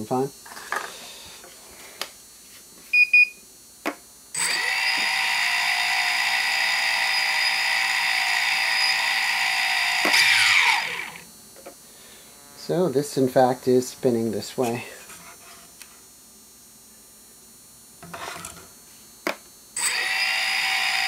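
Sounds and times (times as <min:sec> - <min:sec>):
drone motors whining: 0:04.4 - 0:11.3, 0:19.8 - 0:21.0.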